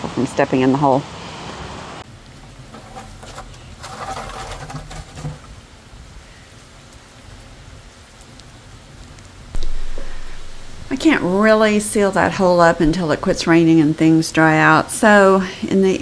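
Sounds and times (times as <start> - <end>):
rain falling on wet ground: 2.0 - 16.0
plastic bucket knocks and rustles: 2.8 - 5.5.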